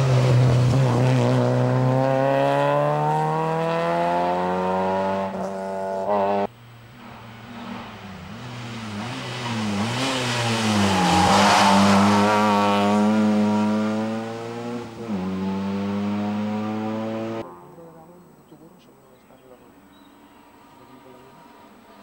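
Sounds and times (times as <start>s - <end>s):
rally car engine at high revs: 0.0s - 6.5s, 7.4s - 17.4s.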